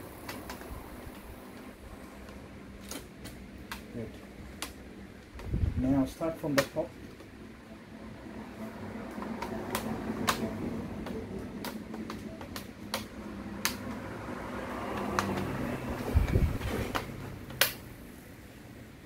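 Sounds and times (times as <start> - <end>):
plastic clips snapping in: 16.9 - 17.9.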